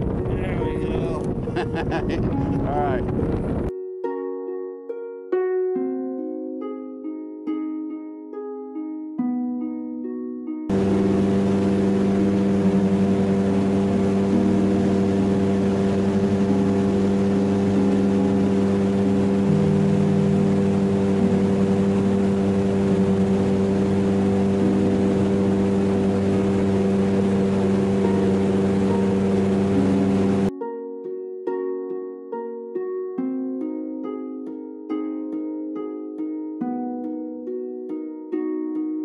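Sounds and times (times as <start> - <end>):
boat motor running: 0.0 - 3.7, 10.7 - 30.5.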